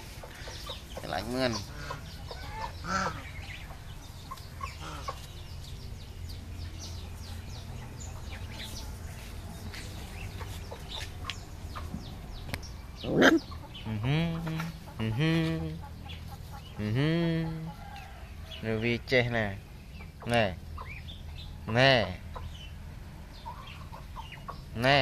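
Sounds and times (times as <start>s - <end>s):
chickens clucking: 0.0s - 25.0s
chicken squawk: 1.5s - 3.5s, 13.0s - 13.8s.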